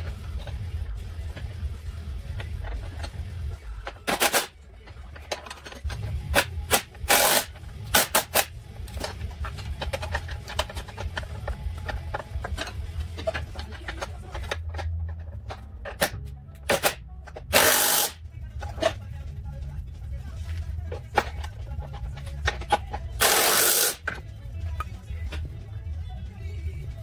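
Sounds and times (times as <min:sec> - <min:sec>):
impact wrench bursts: 0:06.3 - 0:08.5, 0:16.7 - 0:18.2, 0:23.2 - 0:24.1.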